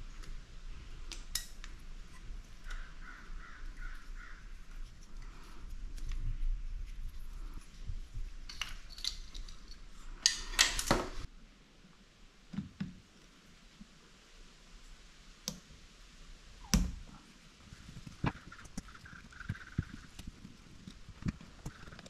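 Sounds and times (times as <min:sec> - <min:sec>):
metal tools clinking: 0:08.5 - 0:10.9.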